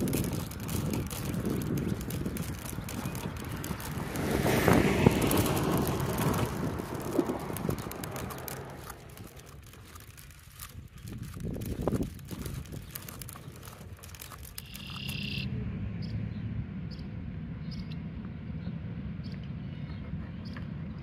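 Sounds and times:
car passing: 0:00.0 - 0:10.2, 0:14.7 - 0:20.9.

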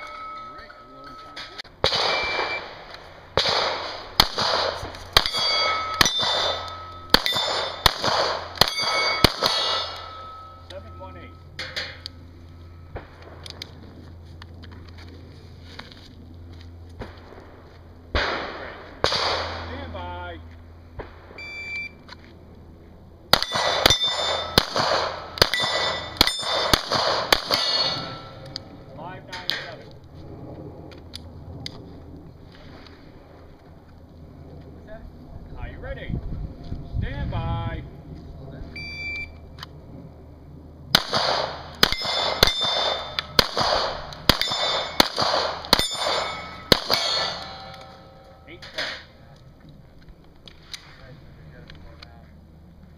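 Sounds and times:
bullets ringing on steel plates: 0:00.0 - 0:02.6, 0:05.2 - 0:12.0, 0:23.4 - 0:24.8, 0:25.4 - 0:28.5, 0:41.8 - 0:43.5, 0:44.3 - 0:49.1
pistol shots: 0:01.8 - 0:10.4, 0:18.1 - 0:19.7, 0:23.3 - 0:28.5, 0:40.9 - 0:49.1
shot timer beep: 0:02.1 - 0:02.6, 0:21.4 - 0:22.0.

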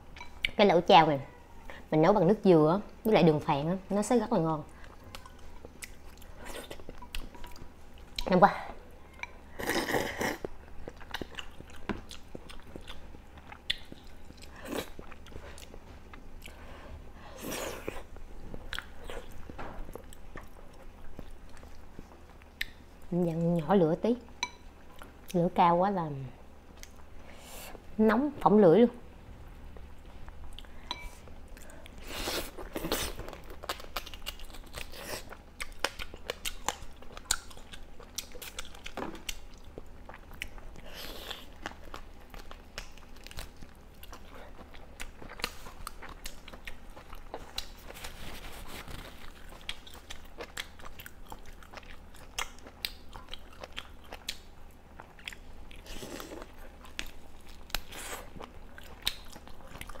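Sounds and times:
person chewing close up: 0:04.7 - 0:08.4, 0:09.1 - 0:16.7, 0:17.4 - 0:23.1, 0:26.7 - 0:27.1, 0:29.7 - 1:00.0.

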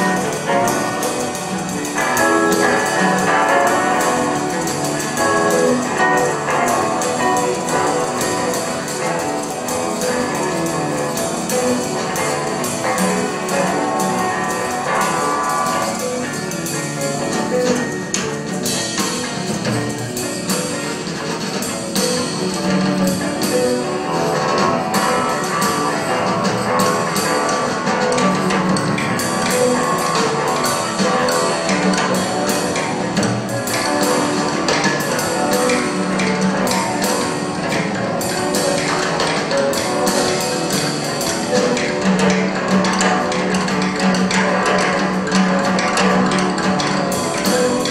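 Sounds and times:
electric guitars playing: 0:00.0 - 0:47.9
hand percussion: 0:00.0 - 0:47.9.

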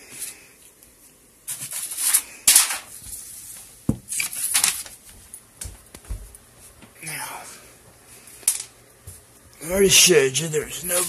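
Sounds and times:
rustling handling noise: 0:10.8 - 0:11.0.

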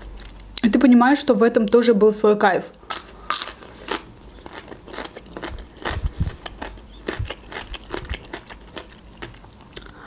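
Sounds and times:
chewing crisp cucumber: 0:02.9 - 0:10.0.

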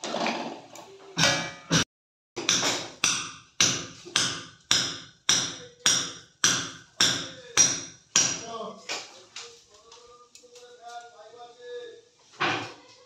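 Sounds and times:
hammer striking wall: 0:02.4 - 0:08.6.

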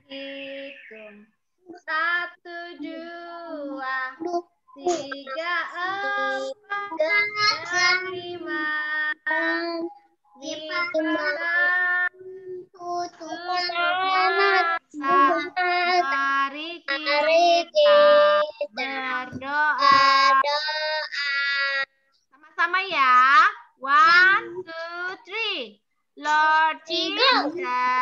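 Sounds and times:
child singing: 0:00.0 - 0:21.9, 0:26.2 - 0:28.0
woman singing along: 0:01.8 - 0:09.7, 0:13.2 - 0:20.4.

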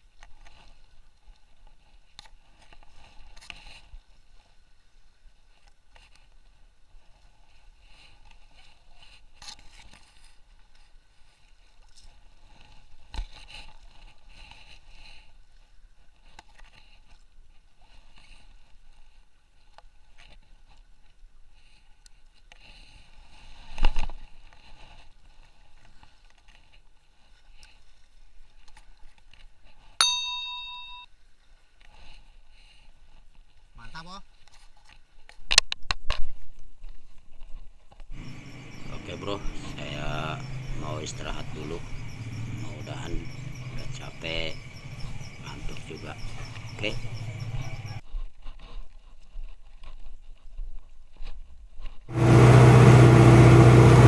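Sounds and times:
water lapping: 0:38.2 - 0:48.0.

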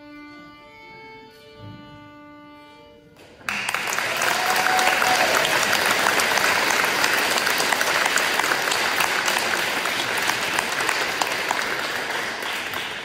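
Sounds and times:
audience applauding: 0:03.4 - 0:13.0.

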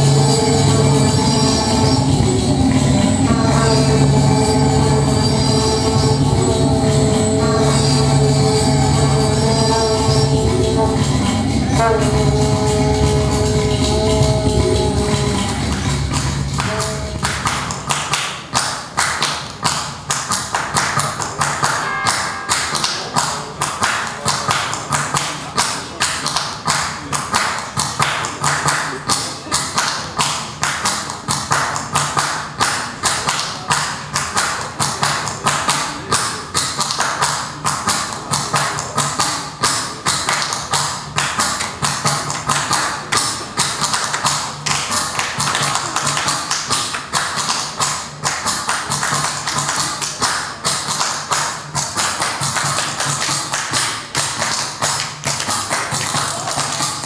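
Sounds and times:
amplified hand claps on microphone: 0:16.6 - 0:57.0.

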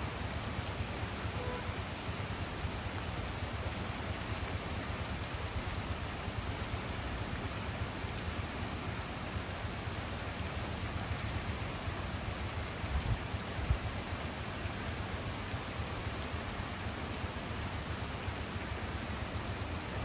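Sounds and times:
steady rain falling: 0:00.0 - 0:20.0.

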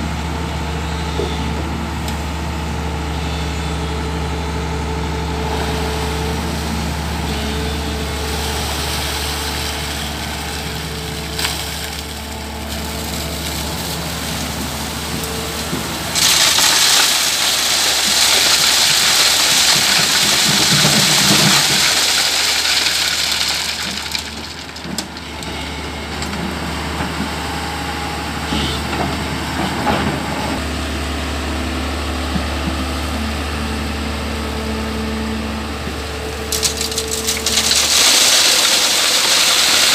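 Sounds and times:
excavator diesel engine running: 0:00.0 - 0:39.9
stones and gravel pouring onto metal: 0:08.3 - 0:15.0, 0:16.1 - 0:25.3, 0:36.5 - 0:39.9.

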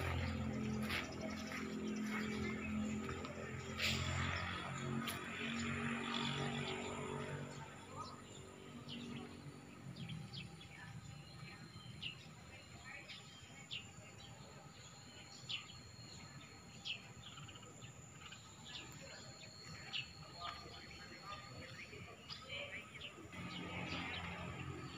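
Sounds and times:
birds chirping: 0:00.0 - 0:24.9.

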